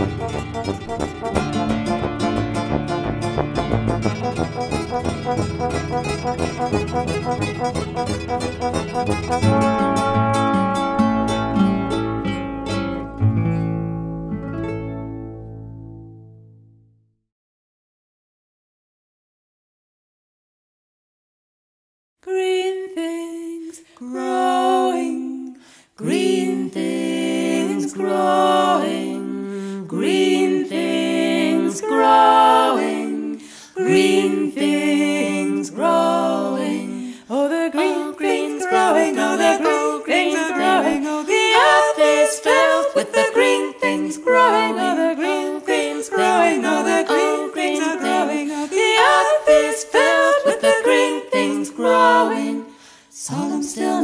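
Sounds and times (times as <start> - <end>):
a cappella harmony singing: 22.2 - 54.0.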